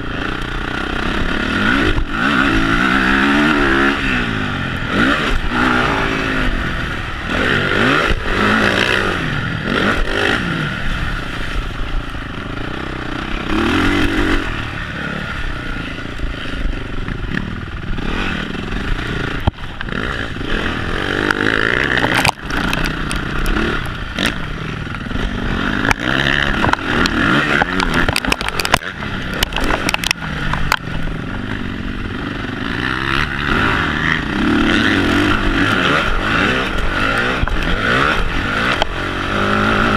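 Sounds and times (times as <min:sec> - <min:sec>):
motorbike engine revving: 0:00.0 - 0:39.9
sharp clicks and knocks: 0:21.2 - 0:25.0, 0:25.8 - 0:31.6, 0:38.6 - 0:39.0.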